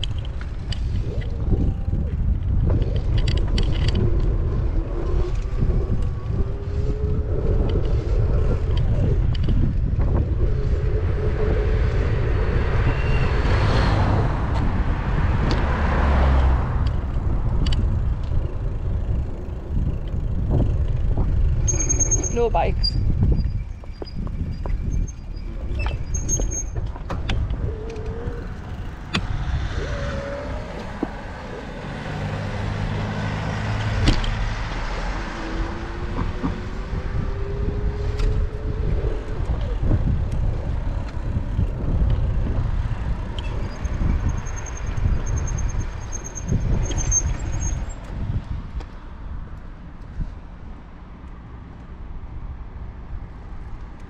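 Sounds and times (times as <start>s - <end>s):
wind buffeting microphone: 0.0s - 54.0s
vehicle engine passing: 27.4s - 39.5s.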